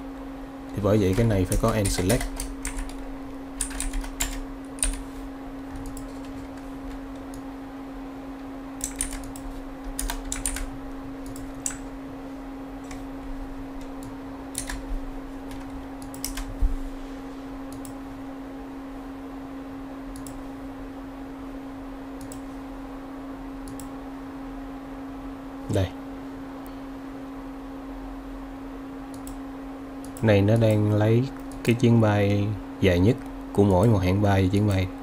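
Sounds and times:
low electrical hum: 0.0s - 35.0s
typing on computer keyboard: 1.1s - 3.0s, 3.6s - 5.0s, 5.8s - 6.4s, 8.8s - 10.7s, 14.6s - 14.8s, 15.5s - 16.5s.

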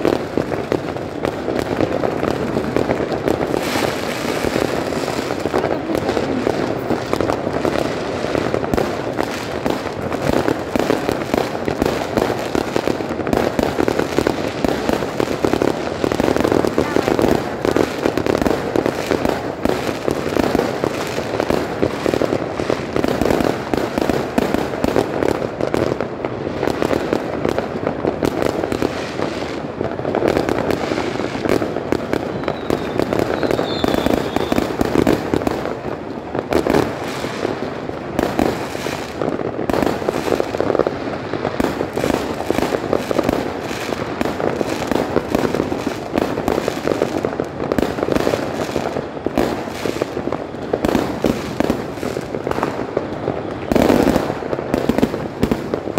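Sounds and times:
fireworks banging and crackling: 0.0s - 55.9s.

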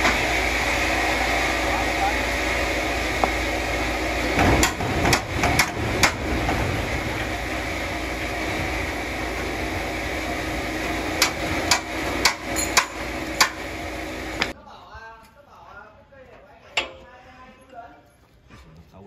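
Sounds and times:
machine hum: 0.0s - 14.6s
hammer-like knocks: 4.4s - 6.6s.

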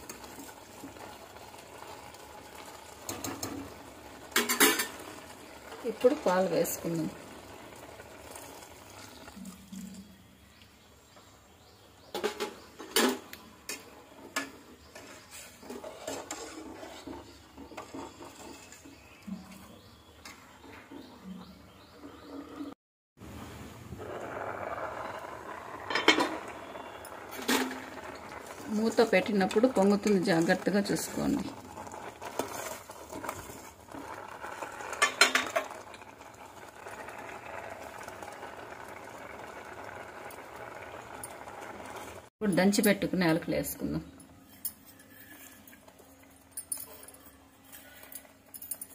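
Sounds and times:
milk bubbling at the boil: 0.0s - 10.9s, 12.1s - 21.4s, 22.6s - 42.3s
ladle scraping steel pot: 12.2s - 22.8s, 24.0s - 38.1s, 44.5s - 45.9s
metal spoon scraping steel pot: 15.0s - 19.4s, 44.5s - 45.8s
metal clinks: 44.2s - 48.9s.

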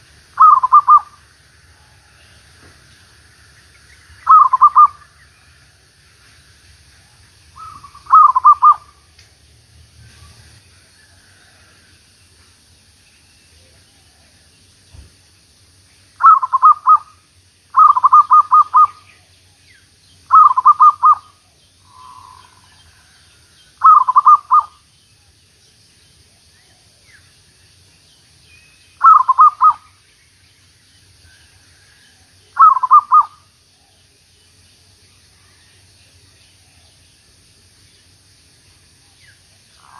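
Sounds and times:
dove cooing: 0.0s - 1.2s, 4.2s - 5.0s, 7.6s - 9.0s, 16.2s - 17.1s, 17.8s - 19.2s, 20.3s - 21.3s, 23.8s - 24.8s, 29.0s - 29.9s, 32.6s - 33.4s.

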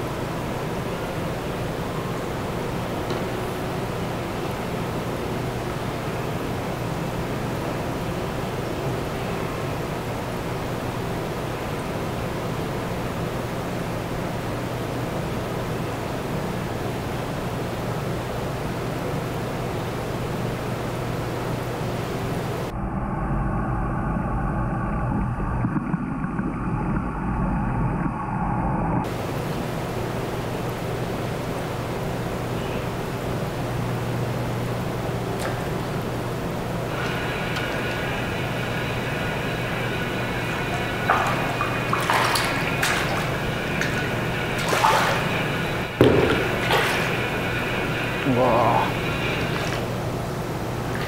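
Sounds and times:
hiss of room and water noise: 0.0s - 22.7s, 27.5s - 51.0s
faint steady hum: 0.0s - 51.0s
muffled underwater rumble and crackle: 22.7s - 29.2s, 35.7s - 44.6s, 45.2s - 50.9s
fish splashing at the surface: 40.6s - 48.2s.

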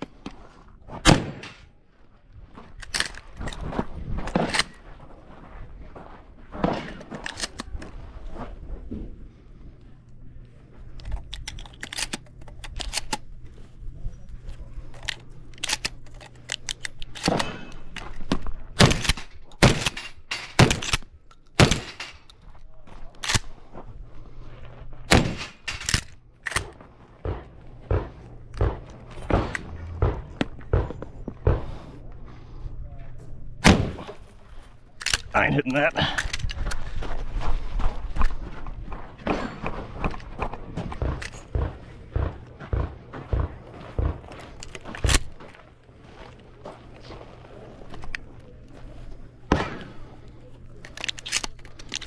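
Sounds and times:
shotgun shots: 1.0s - 1.7s, 18.8s - 21.0s, 21.6s - 22.2s, 25.1s - 25.9s, 26.6s - 31.8s, 33.6s - 34.2s.

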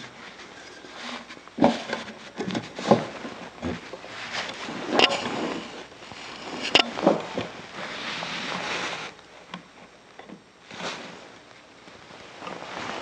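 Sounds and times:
wood scraping on wood: 0.0s - 9.2s
faint handling sounds: 0.0s - 13.0s.

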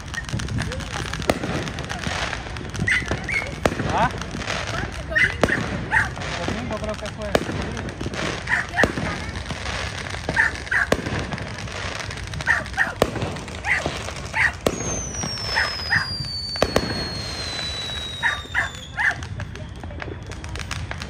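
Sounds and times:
fireworks bangs and crackle: 0.0s - 21.0s
dog barking: 2.8s - 3.4s, 5.1s - 6.2s, 8.5s - 8.7s, 10.3s - 10.9s, 12.4s - 13.0s, 13.6s - 14.6s, 15.6s - 16.0s, 18.2s - 19.2s.

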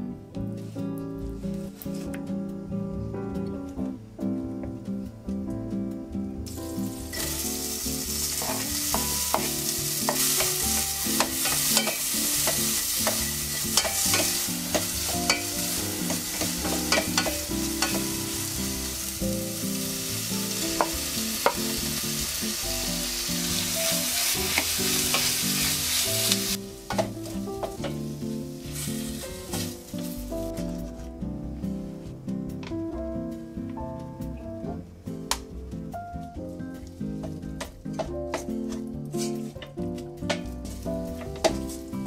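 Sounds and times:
onions sizzling in butter: 6.5s - 30.6s, 40.6s - 42.0s.

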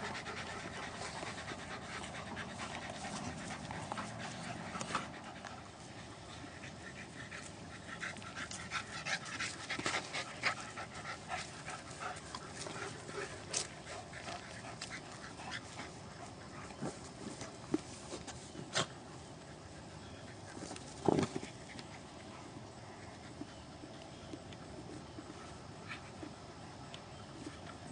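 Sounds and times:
dogs panting hard: 0.0s - 17.6s.

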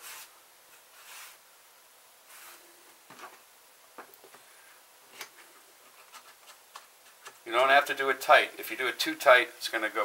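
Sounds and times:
soft rustles: 2.2s - 7.4s.

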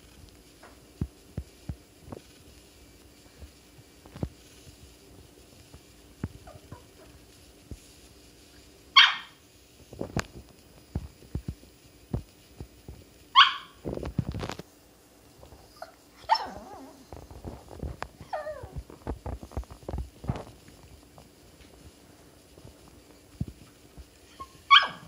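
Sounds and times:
small dog barking: 9.0s - 9.4s, 13.3s - 13.8s, 15.8s - 16.9s, 24.3s - 25.0s.

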